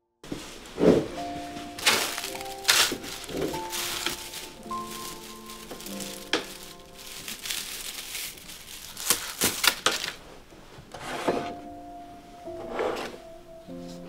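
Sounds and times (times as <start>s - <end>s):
soft background music: 0.3s - 9.0s, 11.0s - 14.0s
bamboo ribs rustling and clicking: 0.8s - 11.0s.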